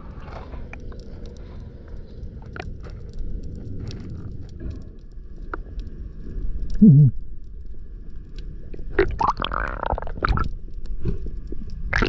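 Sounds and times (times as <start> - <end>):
underwater low rumble: 0.0 - 12.0
gurgling water: 8.7 - 12.0
bubbling and splashing: 8.8 - 12.0.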